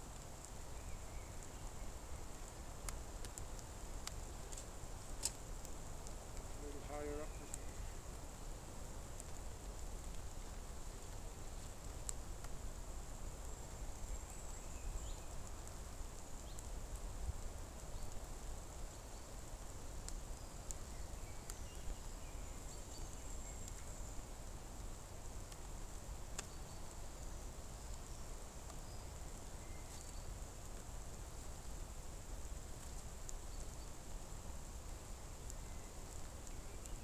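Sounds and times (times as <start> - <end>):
steady hiss: 0.0 - 37.0
faint bird chirps: 6.6 - 8.0.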